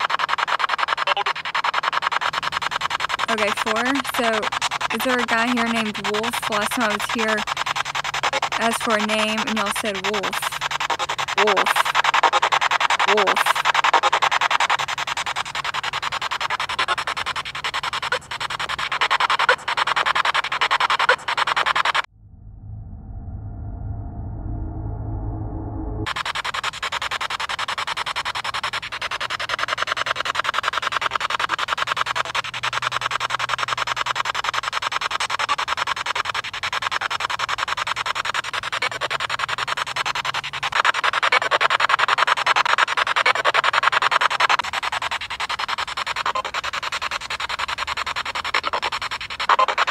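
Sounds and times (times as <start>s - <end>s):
radio static chopping: 0.0s - 22.1s
pulsing radio static: 0.0s - 49.9s
voice fragment: 11.4s - 11.9s, 13.1s - 13.7s.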